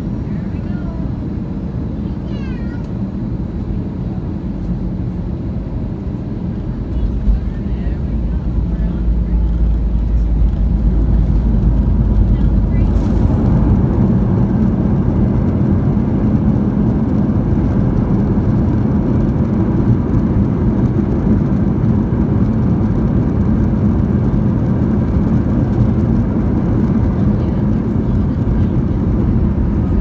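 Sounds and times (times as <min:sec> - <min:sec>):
airliner cabin engine rumble: 0:00.0 - 0:30.0.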